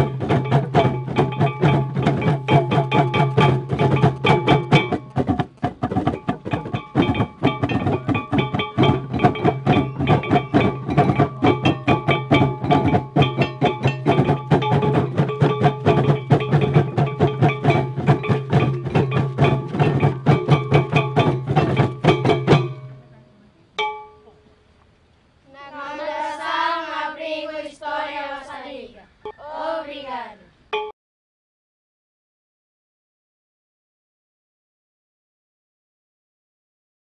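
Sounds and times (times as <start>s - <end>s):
hand drums beating fast: 0.0s - 23.0s
ringing metallic tones: 6.2s - 24.4s
voices singing chanted phrase: 25.5s - 30.6s.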